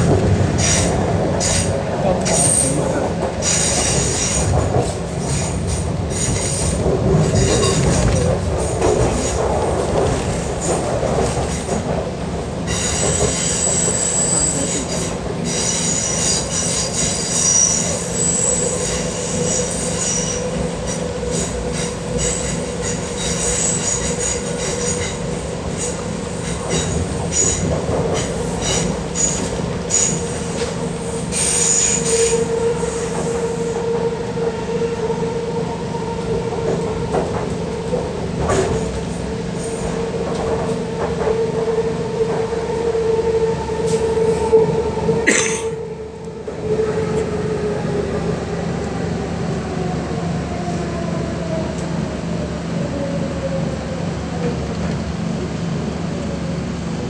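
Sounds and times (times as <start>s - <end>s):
train rolling along tracks: 0.0s - 57.0s
train wheels squealing: 3.4s - 8.0s, 12.6s - 34.0s.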